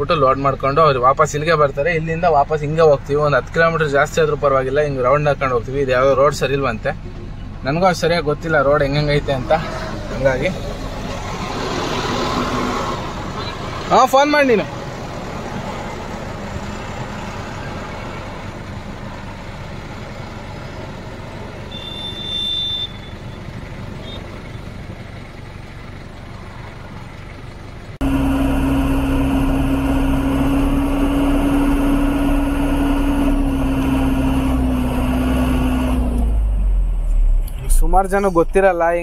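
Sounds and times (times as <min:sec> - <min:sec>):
diesel engine idling and revving: 0:00.0 - 0:39.0.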